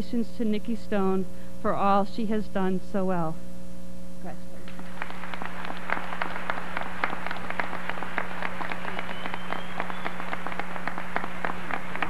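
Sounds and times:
low electrical hum: 0:00.0 - 0:12.0
audience applauding: 0:04.7 - 0:12.0.

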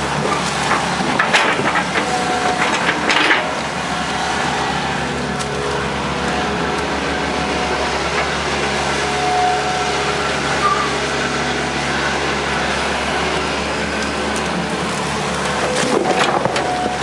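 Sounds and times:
excavator diesel engine running: 0:00.0 - 0:17.0
high-pitched hydraulic whines: 0:09.2 - 0:11.0.

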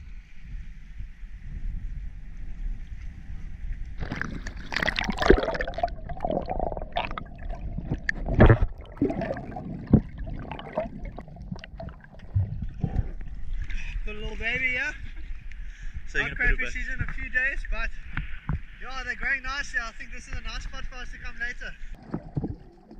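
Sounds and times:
low wind rumble: 0:00.0 - 0:17.8
bubbles: 0:04.0 - 0:13.4, 0:22.0 - 0:22.9
water splashing and gurgling: 0:04.0 - 0:13.8, 0:22.0 - 0:22.9.

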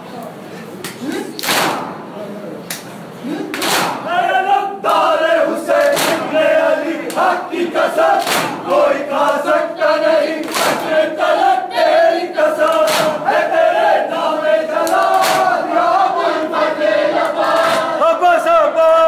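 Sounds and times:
hands slapping bare chests: 0:03.5 - 0:04.0, 0:05.8 - 0:06.3, 0:08.2 - 0:08.6, 0:10.4 - 0:10.9, 0:12.7 - 0:13.2, 0:14.8 - 0:15.5
crowd of men chanting: 0:04.0 - 0:18.6.

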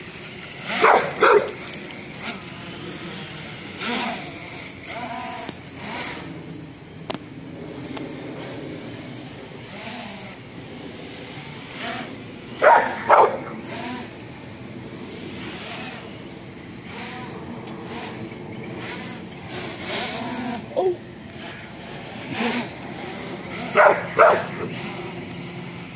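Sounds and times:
drone motors whining: 0:00.0 - 0:25.9
dog barking: 0:00.8 - 0:01.6, 0:12.6 - 0:13.5, 0:23.8 - 0:24.7.

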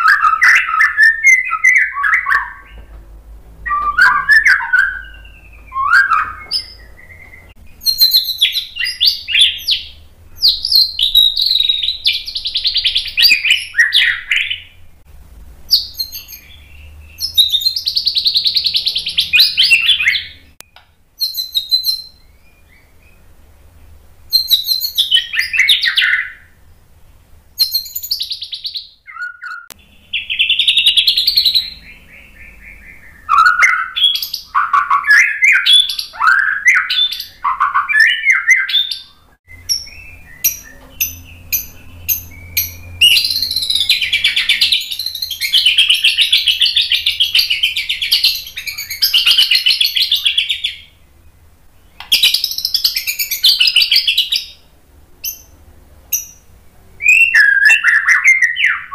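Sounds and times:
bird singing whistled phrases: 0:00.0 - 0:02.9, 0:03.6 - 0:14.8, 0:15.7 - 0:23.2, 0:24.3 - 0:26.6, 0:27.6 - 0:51.0, 0:51.9 - 0:54.6, 0:57.0 - 0:58.9
bird chattering trill: 0:03.7 - 0:14.8, 0:15.7 - 0:20.6, 0:27.6 - 0:51.0
bird sharp clicks: 0:52.0 - 0:52.4.

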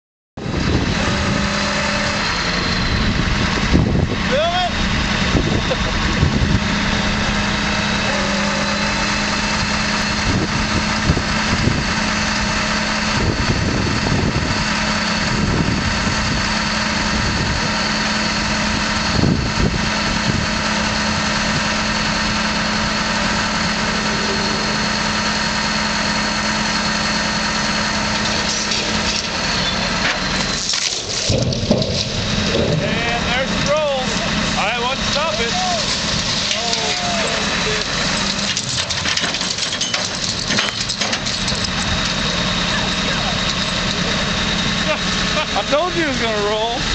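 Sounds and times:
engine idling: 0:00.4 - 0:46.9
knocks and clunks: 0:30.0 - 0:33.7.

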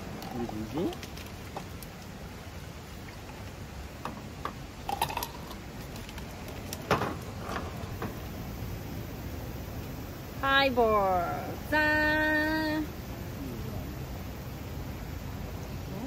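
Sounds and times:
low background noise: 0:00.0 - 0:16.0
whiskey pouring over ice: 0:04.2 - 0:08.0
bottle and ice cubes knocking: 0:04.4 - 0:05.6.

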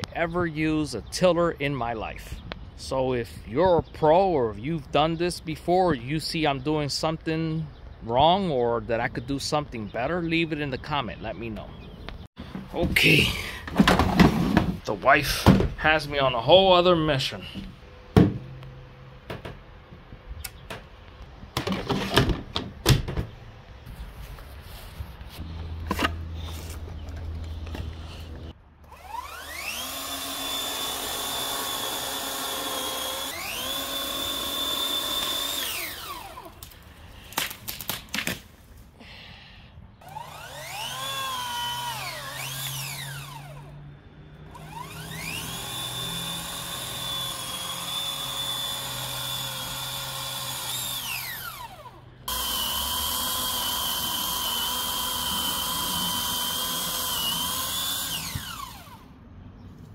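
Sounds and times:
power drill motor whining: 0:25.8 - 0:36.6, 0:40.0 - 0:43.7, 0:44.4 - 0:59.1.

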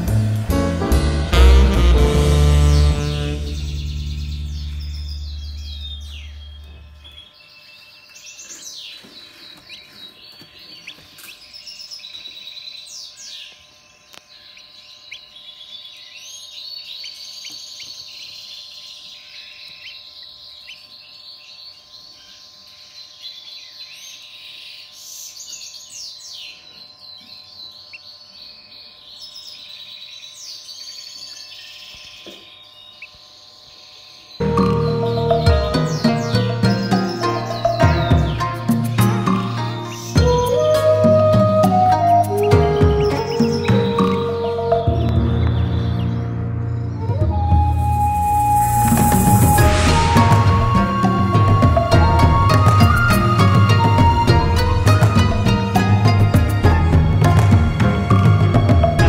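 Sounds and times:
chicks peeping: 0:02.7 - 0:12.9, 0:13.5 - 0:46.3.

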